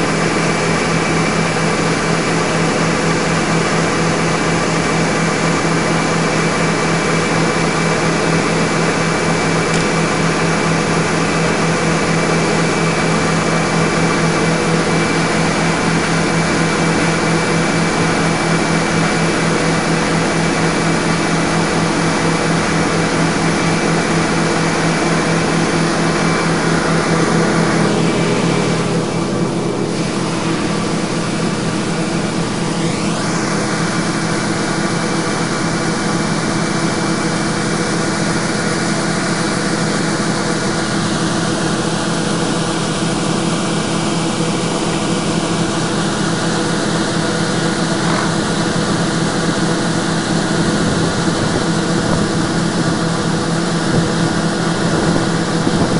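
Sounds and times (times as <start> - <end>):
combine engine drone: 0.0 - 55.9.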